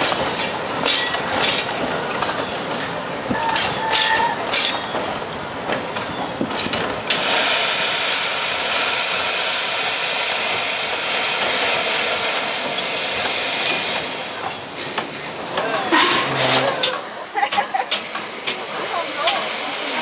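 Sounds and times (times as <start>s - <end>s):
steam locomotive hissing steam: 7.1s - 14.9s, 15.9s - 20.0s.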